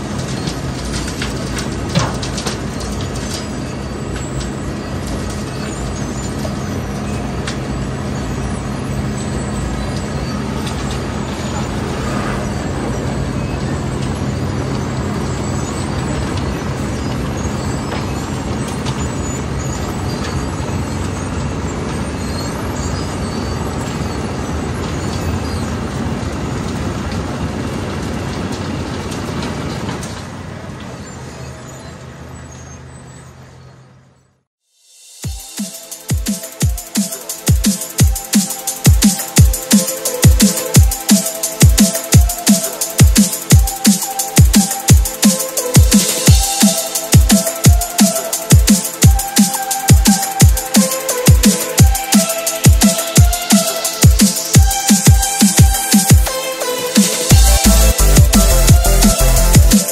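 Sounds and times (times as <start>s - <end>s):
debris clattering into truck: 0.0s - 31.6s
diesel engine: 0.0s - 34.5s, 35.3s - 59.9s
cutting drum grinding: 35.2s - 59.9s.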